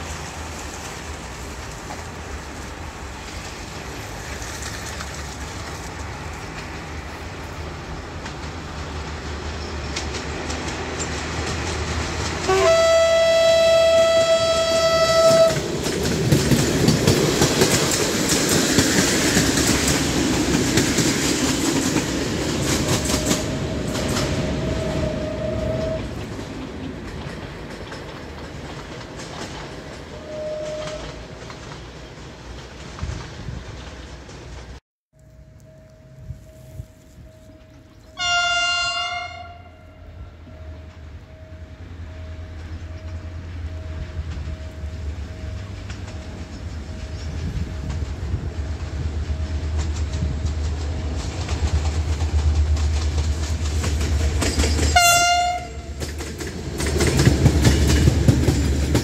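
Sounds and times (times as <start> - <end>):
wheels clicking over rail joints: 0.0 - 36.2, 40.4 - 59.0
locomotive engine: 0.0 - 59.0
train horn blast: 12.4 - 15.7, 22.8 - 26.2, 30.1 - 31.2, 38.1 - 40.4, 54.9 - 56.0.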